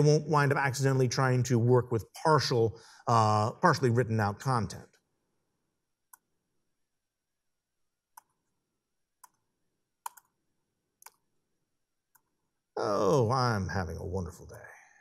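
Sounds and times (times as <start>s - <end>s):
laptop clicks: 10.0s - 10.4s.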